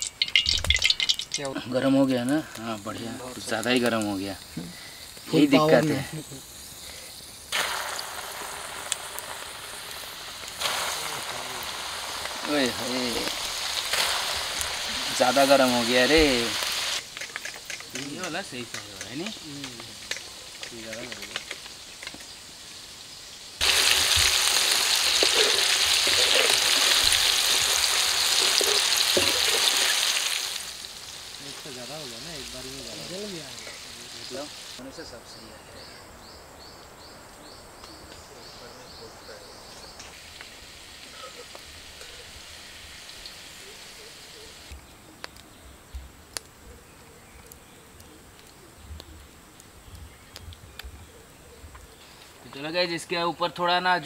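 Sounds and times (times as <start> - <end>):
chicken deep-frying in oil: 0.0 - 4.4, 7.5 - 34.8, 39.9 - 44.8.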